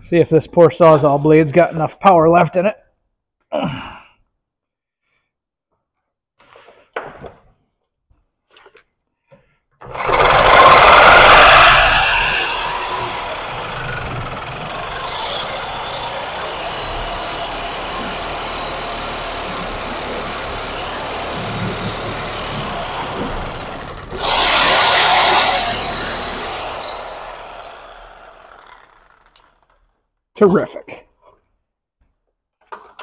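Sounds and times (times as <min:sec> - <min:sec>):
reciprocating saw cutting: 0:09.8 - 0:29.8.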